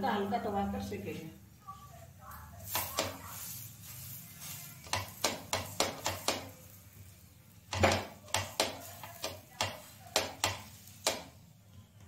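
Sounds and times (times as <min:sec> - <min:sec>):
spatula tapping flatbread on griddle: 0:02.6 - 0:03.4, 0:04.4 - 0:06.7, 0:07.7 - 0:11.4
spatula knock: 0:04.9 - 0:06.6, 0:07.7 - 0:11.4.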